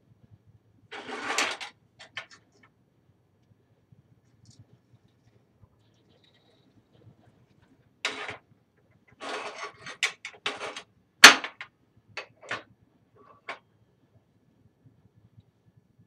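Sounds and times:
metal scraping on workbench: 0.9s - 1.7s, 8.1s - 8.4s, 9.2s - 10.8s.

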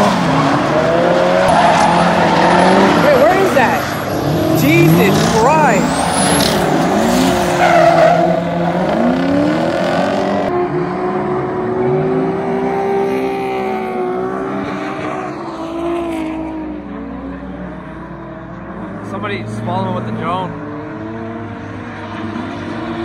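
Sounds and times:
car engines revving: 0.0s - 23.0s
tyre squeal: 1.4s - 8.6s.

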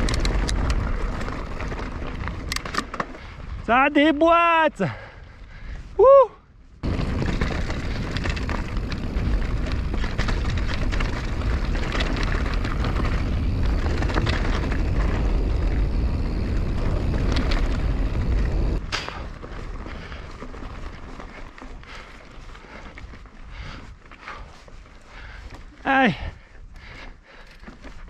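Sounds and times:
wind buffeting microphone: 0.0s - 27.4s
bike tyres clicking and rattling: 0.0s - 28.0s.

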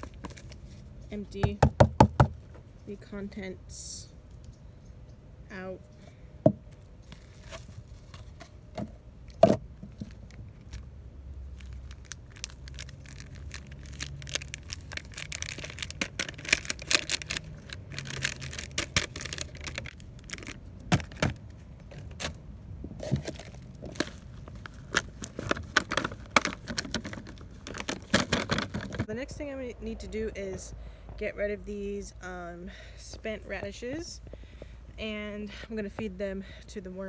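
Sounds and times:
plastic pots crinkling: 0.0s - 0.9s, 7.0s - 29.1s.

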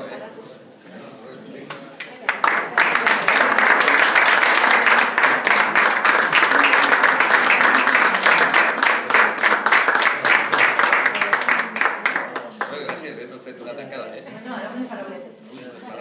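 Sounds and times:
audience applauding: 2.0s - 13.1s.

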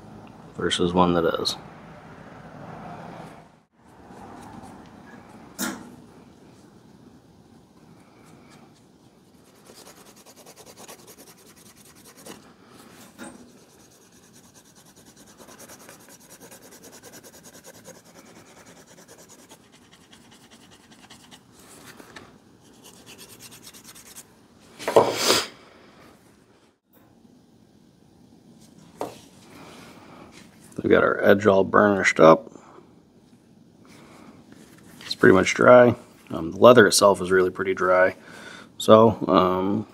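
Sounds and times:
leather rubbing back and forth: 8.3s - 21.8s, 22.6s - 24.3s.

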